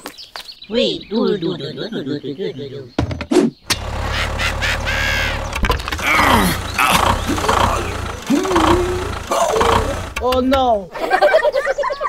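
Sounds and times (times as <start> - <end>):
tractor engine rumble: 3.7 - 11.1.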